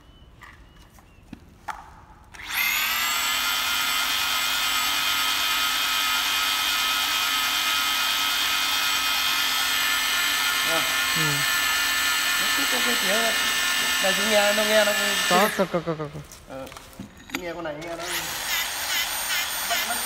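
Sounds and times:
electric motor high whine: 2.4s - 15.9s.

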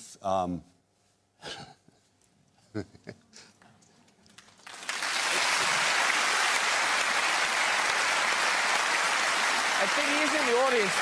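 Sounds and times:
studio audience applause: 4.3s - 11.0s.

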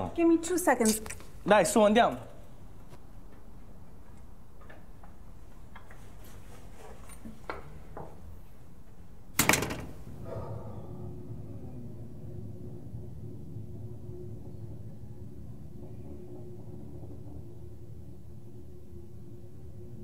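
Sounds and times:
door slamming shut: 9.4s - 10.2s.

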